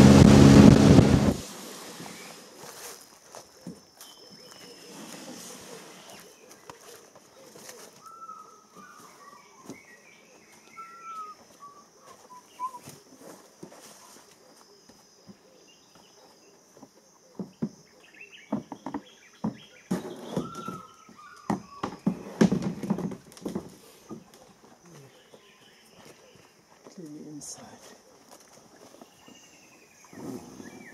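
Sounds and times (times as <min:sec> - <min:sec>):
birds whistling and twittering: 0:04.0 - 0:12.9, 0:17.9 - 0:22.4, 0:28.8 - 0:30.9
knocks and scuffs on wooden canoe: 0:12.3 - 0:16.1, 0:16.7 - 0:24.5.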